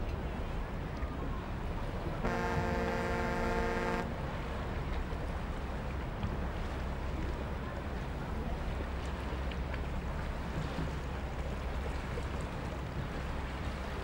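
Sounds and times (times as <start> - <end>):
boat engine rumble: 0.0 - 14.0
boat horn blast: 2.2 - 4.7.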